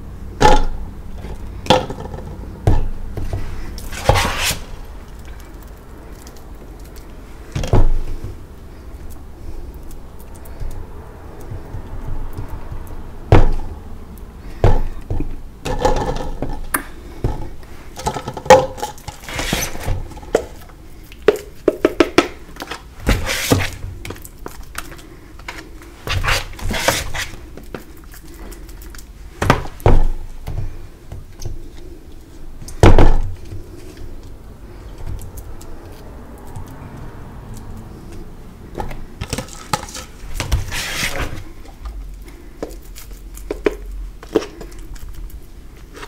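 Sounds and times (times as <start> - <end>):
chalk crunching and scraping: 3.3 - 6.3, 19.1 - 20.3, 23.0 - 28.9, 39.5 - 45.1.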